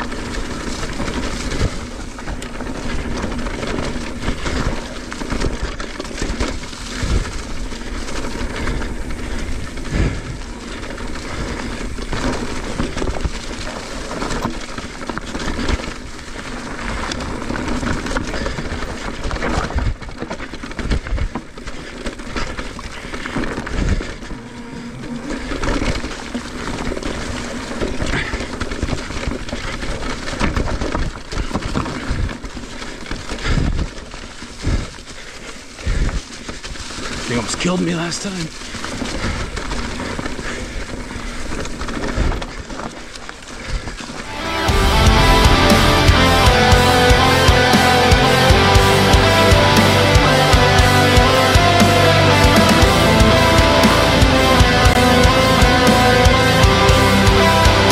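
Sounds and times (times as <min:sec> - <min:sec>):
bike knocking and rattling: 0:00.0 - 0:44.3
bike tyre noise: 0:00.0 - 0:57.9.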